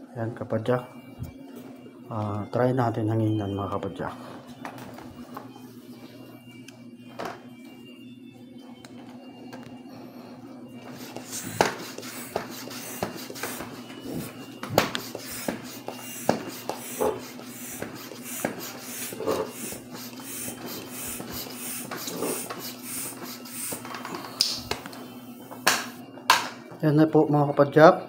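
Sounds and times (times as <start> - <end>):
hand pump strokes: 10.9 - 24.2.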